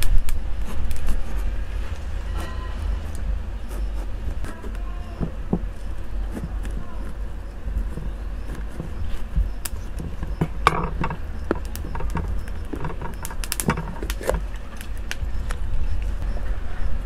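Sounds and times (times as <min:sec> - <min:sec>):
low steady rumble: 0:00.0 - 0:17.0
pepper flesh cracking and snapping: 0:04.0 - 0:15.6.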